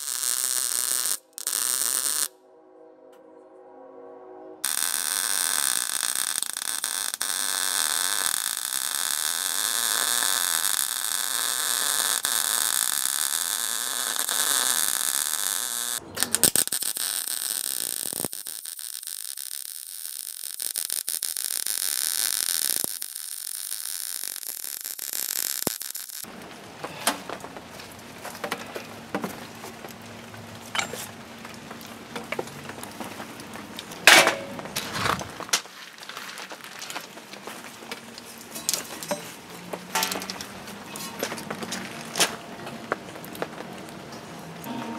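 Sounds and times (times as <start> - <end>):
arc welding crackling hiss: 0.0 - 2.3, 4.6 - 26.5
steel pieces knocking together: 30.7 - 31.1, 34.0 - 34.7, 38.5 - 39.3, 39.9 - 40.5.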